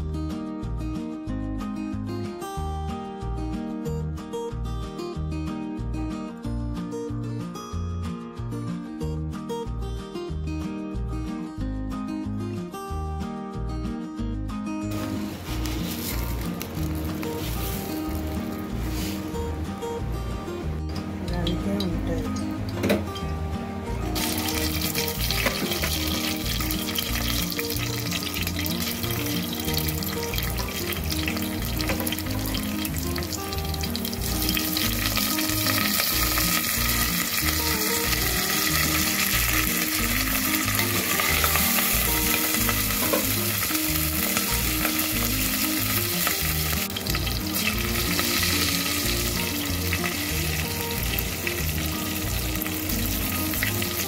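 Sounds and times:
background music: 0.0s - 54.0s
hot oil sizzling: 14.9s - 20.1s, 24.1s - 54.0s.

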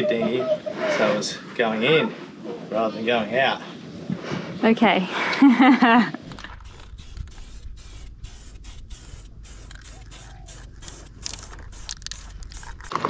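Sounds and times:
spray paint can hissing: 6.3s - 13.0s.

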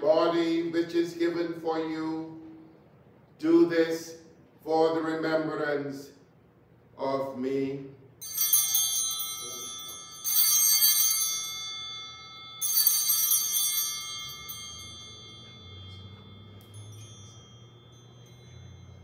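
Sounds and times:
altar bells ringing: 8.2s - 19.0s.

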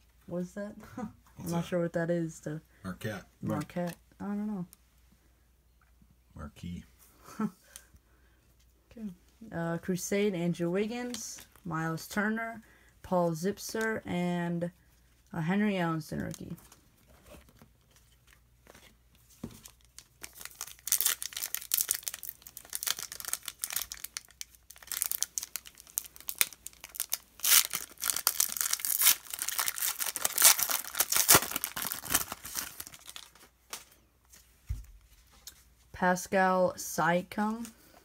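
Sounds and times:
wrapper tearing and crinkling: 19.6s - 33.9s.

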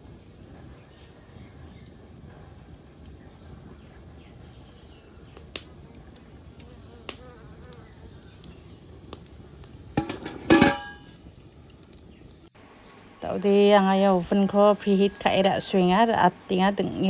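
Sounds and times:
wood fire crackling: 0.0s - 17.0s.

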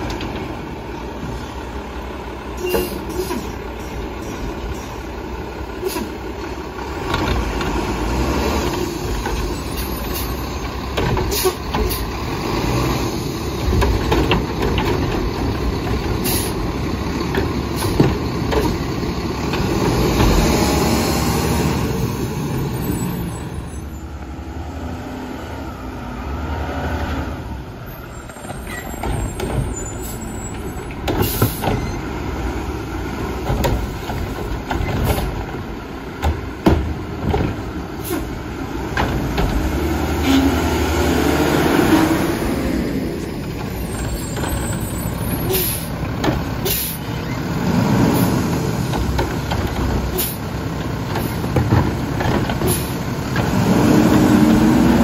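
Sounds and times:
garbage truck engine revving: 5.0s - 55.0s
air brake hisses: 5.8s - 6.2s, 45.5s - 45.9s, 46.6s - 47.1s.

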